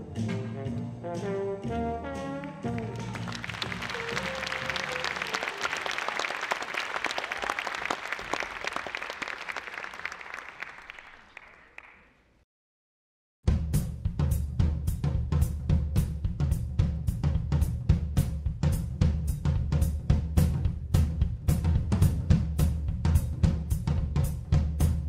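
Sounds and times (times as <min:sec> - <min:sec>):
brass-led jazz: 0:00.0 - 0:06.0
audience applauding: 0:02.4 - 0:12.2.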